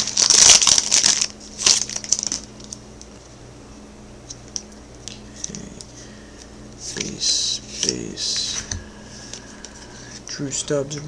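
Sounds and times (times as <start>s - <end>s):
foil wrapper crinkling: 0.0s - 3.2s
cards clicking as handled: 7.8s - 9.8s.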